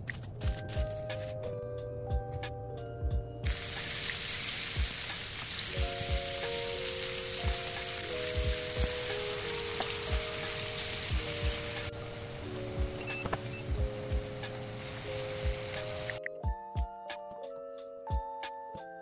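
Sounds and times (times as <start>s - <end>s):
gentle piano music: 0.0s - 19.0s
mushrooms sizzling in hot oil: 3.5s - 12.5s, 14.0s - 16.2s.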